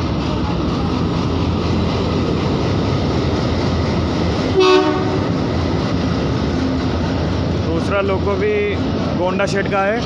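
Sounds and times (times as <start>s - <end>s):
diesel locomotive running: 0.0s - 10.0s
train horn toot: 4.5s - 5.3s.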